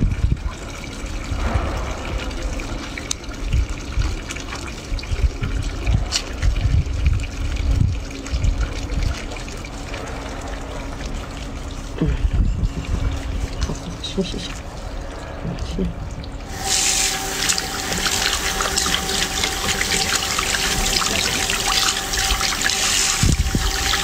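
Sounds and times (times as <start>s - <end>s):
water trickling into a basin: 0.0s - 24.0s.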